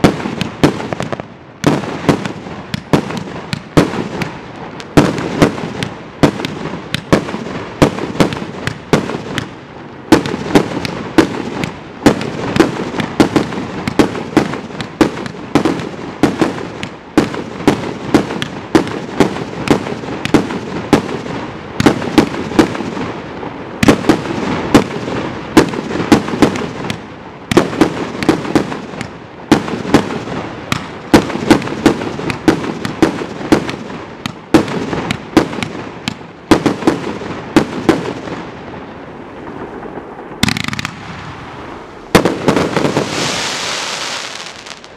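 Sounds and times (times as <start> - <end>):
fireworks sharp bangs: 0.0 - 44.9.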